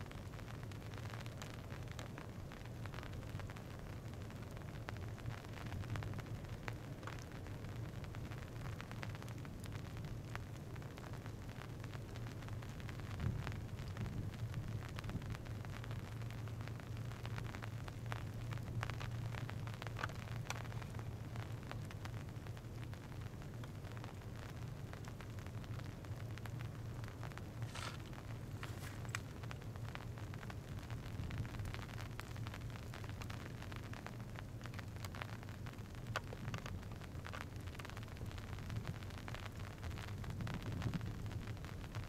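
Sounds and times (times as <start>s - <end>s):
low outdoor rumble: 0.0s - 42.0s
microphone crackles and clicks: 12.8s - 16.3s, 17.2s - 21.8s, 27.0s - 29.6s, 36.0s - 39.1s, 39.9s - 42.0s.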